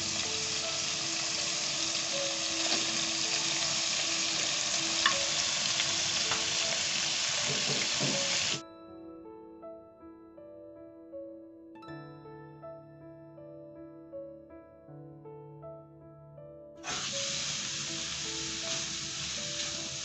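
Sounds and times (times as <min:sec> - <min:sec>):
chicken frying in oil: 0:00.0 - 0:08.6, 0:16.8 - 0:20.0
faint background music: 0:00.0 - 0:20.0.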